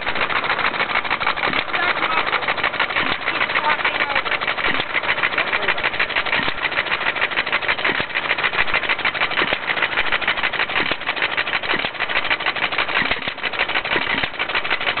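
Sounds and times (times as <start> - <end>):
lawnmower engine running: 0.0 - 15.0.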